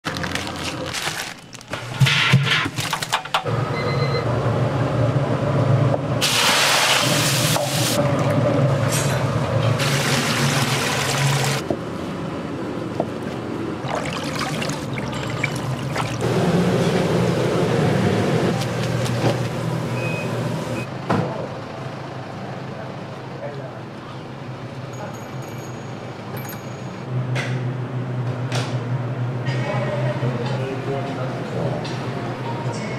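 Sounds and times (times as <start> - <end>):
liquid pouring and splashing: 13.8 - 16.2.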